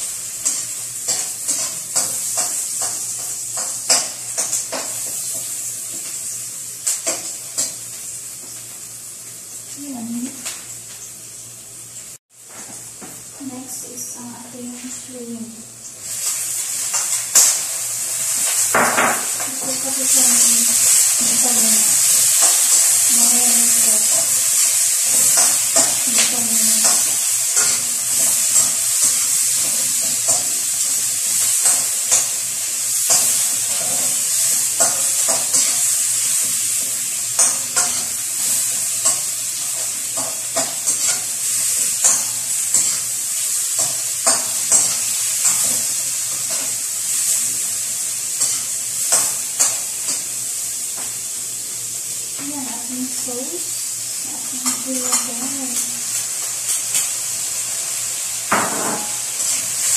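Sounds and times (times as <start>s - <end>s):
shrimp sizzling in hot oil: 0.0s - 12.2s, 13.4s - 59.9s
spatula scraping a wok: 19.5s - 51.0s.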